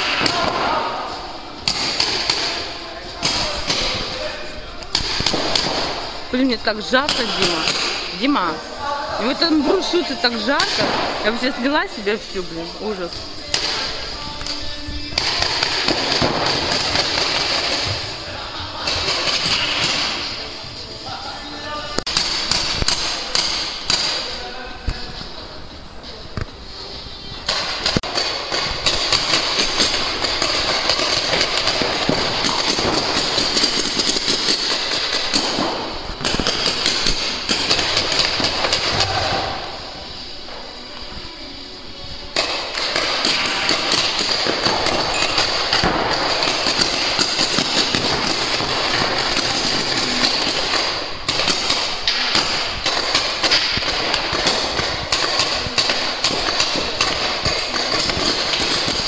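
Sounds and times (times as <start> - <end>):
paintball markers firing: 27.5 - 39.2, 42.4 - 59.0.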